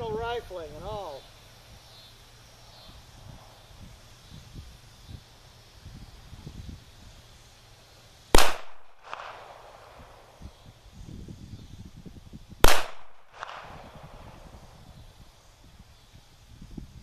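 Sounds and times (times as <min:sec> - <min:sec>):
pistol shots: 0:08.4 - 0:10.0, 0:12.6 - 0:14.0.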